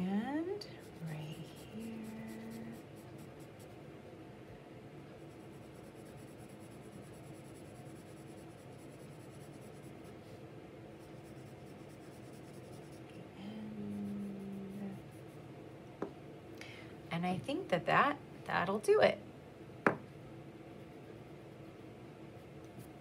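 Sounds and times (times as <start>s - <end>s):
steady hum: 0.0s - 23.0s
pencil scratching on paper: 0.8s - 3.8s, 5.2s - 10.1s, 11.0s - 13.2s.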